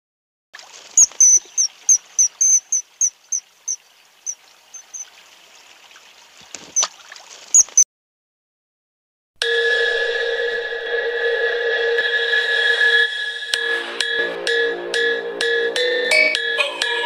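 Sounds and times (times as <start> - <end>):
faint stream rushing: 0.6 - 7.8
kingfisher calling: 1.0 - 5.1, 7.6 - 7.8.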